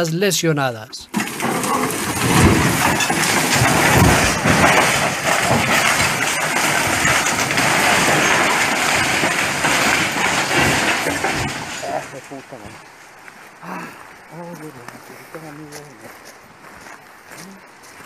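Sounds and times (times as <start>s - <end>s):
metal crashing through brush: 1.1s - 13.0s
heavy thuds: 1.2s - 12.9s.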